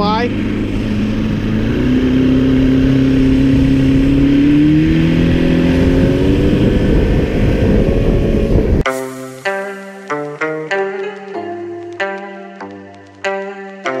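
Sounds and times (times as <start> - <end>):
outboard motor running: 0.0 - 8.8
water rushing: 0.0 - 10.5.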